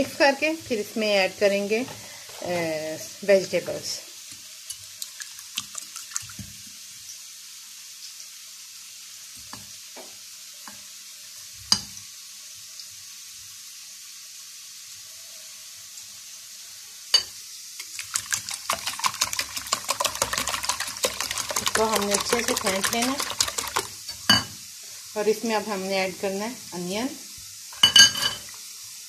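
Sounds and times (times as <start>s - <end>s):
potatoes sizzling in oil: 0.0s - 29.0s
whisk beating eggs in glass bowl: 17.8s - 24.0s.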